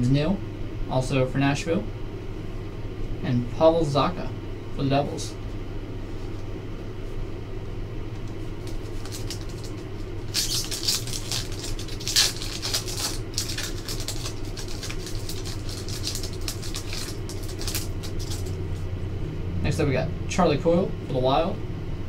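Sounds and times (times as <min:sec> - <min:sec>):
low hum: 0:00.0 - 0:22.0
foil wrapper crinkling: 0:08.2 - 0:18.8.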